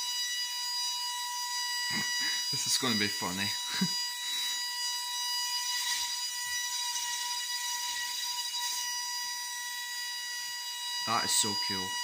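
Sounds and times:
high-pitched electronic horn tone: 0.0s - 12.0s.

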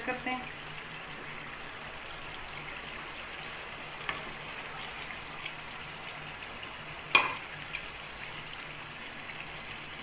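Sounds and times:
gravy sizzling in a frying pan: 0.0s - 10.0s
sharp knock against pan: 7.1s - 7.4s.

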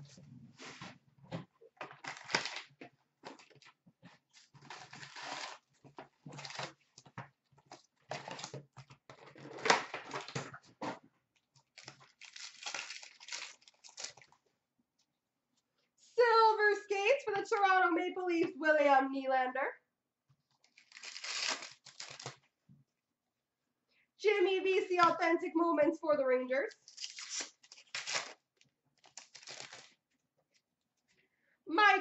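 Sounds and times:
cardboard and wrappers crinkling: 1.8s - 14.4s, 20.6s - 22.4s, 26.7s - 30.1s.

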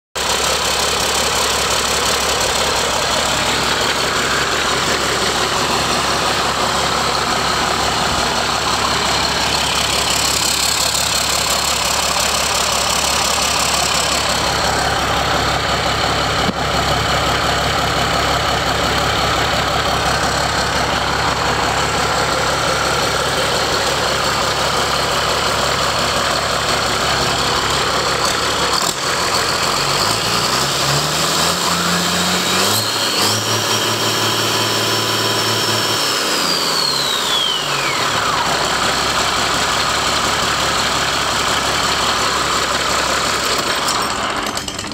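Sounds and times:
diesel engine running: 0.2s - 44.9s.

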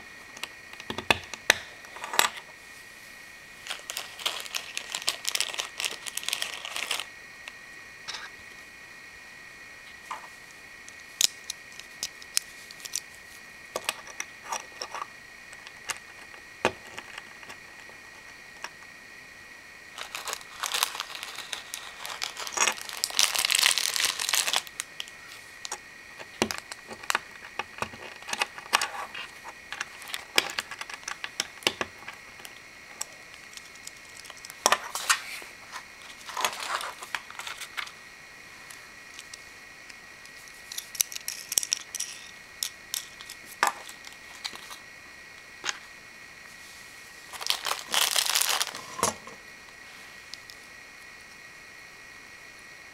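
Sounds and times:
plastic bag crinkling: 3.6s - 7.1s, 19.9s - 31.7s, 36.0s - 37.9s, 47.3s - 49.2s.

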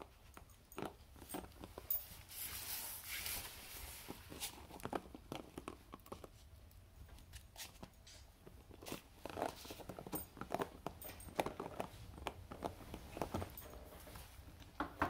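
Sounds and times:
dog gnawing plastic jar: 0.0s - 2.2s, 4.0s - 13.8s
teeth and claws scraping plastic: 4.2s - 13.5s.

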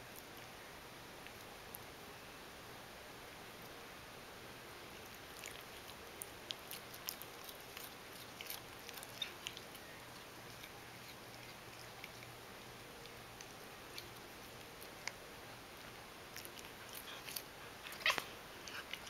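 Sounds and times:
faint steady hum: 0.0s - 19.0s
cat chewing grass: 4.8s - 19.0s.

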